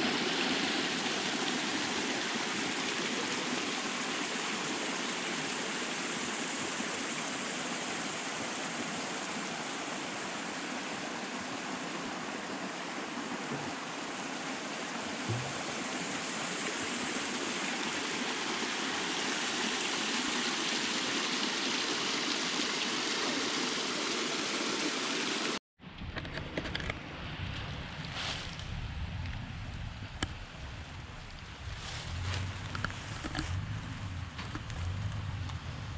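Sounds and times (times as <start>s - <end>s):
creek water rushing over rocks: 0.0s - 25.6s.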